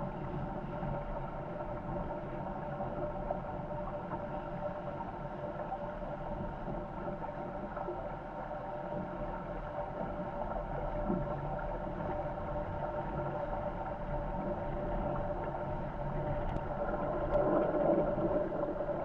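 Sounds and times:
steady hum: 11.0s - 19.0s.

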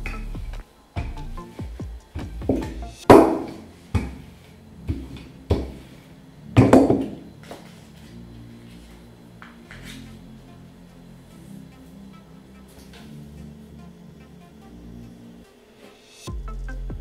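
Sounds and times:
rolling pin knocking on table: 2.5s - 4.2s, 6.6s - 7.2s.

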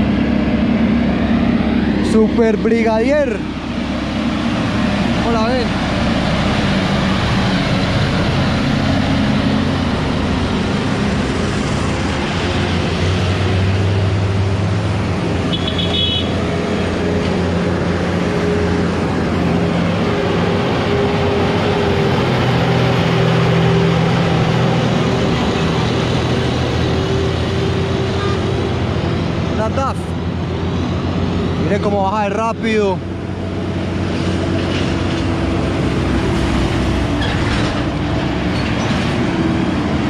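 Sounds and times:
diesel trucks passing: 0.0s - 40.0s
short high horn toot: 15.5s - 16.3s.

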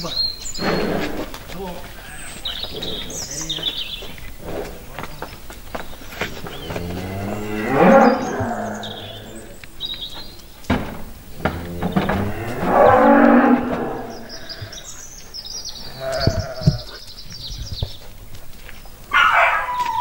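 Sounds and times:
short knocks: 10.7s - 14.3s.

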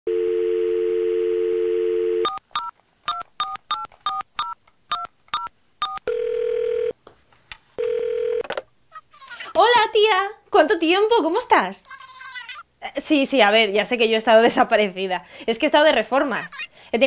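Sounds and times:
telephone dial tone: 0.1s - 4.6s, 5.4s - 6.9s, 7.8s - 8.5s
telephone ringing tone: 0.1s - 7.0s, 7.8s - 8.4s
keypad tone beeps: 2.2s - 6.1s.

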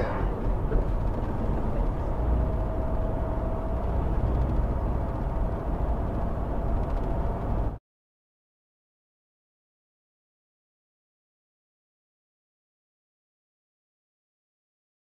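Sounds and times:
car road and engine rumble: 0.0s - 7.8s.

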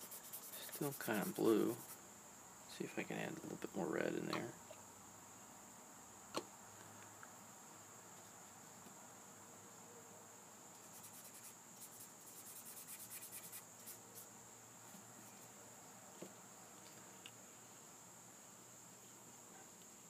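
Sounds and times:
paintbrush scrubbing on paper: 0.0s - 2.0s, 10.8s - 14.3s
faint high-pitched whine: 0.0s - 20.0s.

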